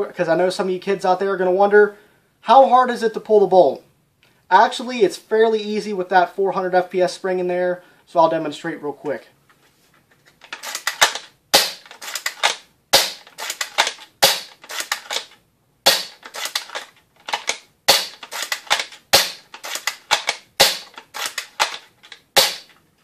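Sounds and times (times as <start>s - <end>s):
rifle bolt clicks: 10.4s - 22.8s.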